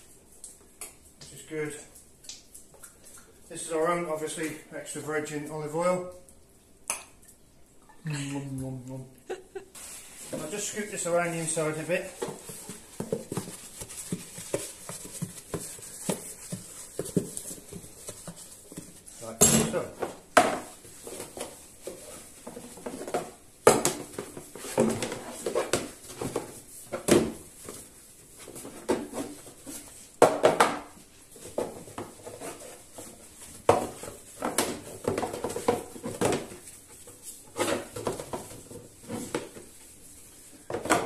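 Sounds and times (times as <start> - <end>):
cloth rubbing and rustling: 9.7 - 19.2
plastic tubs knocking on countertop: 22.8 - 27.4, 30.2 - 31.0.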